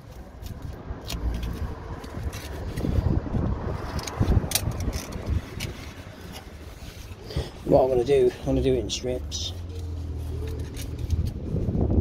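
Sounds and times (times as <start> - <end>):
handling clicks and rustles: 0.0 - 12.0
wind buffeting microphone: 0.6 - 7.6, 10.6 - 12.0.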